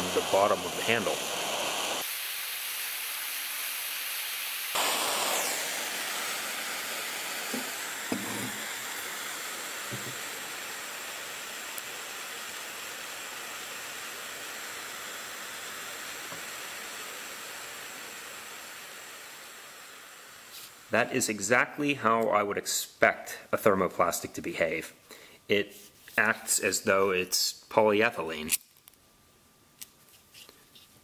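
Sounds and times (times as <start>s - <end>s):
gas torch flame hissing: 0.0s - 21.3s.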